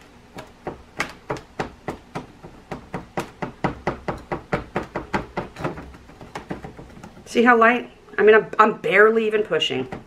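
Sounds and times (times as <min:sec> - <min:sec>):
fingertip knocking on plastic mold: 0:00.4 - 0:07.3.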